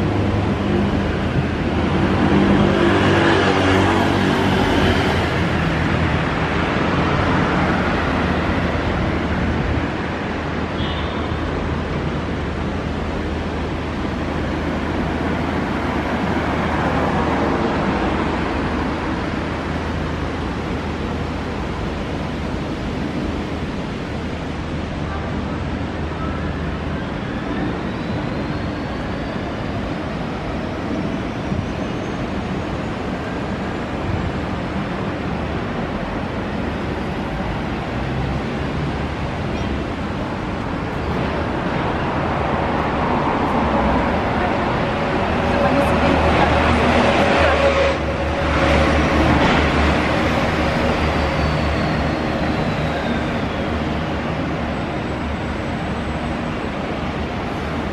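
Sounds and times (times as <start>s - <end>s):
traffic hum: 0.0s - 57.9s.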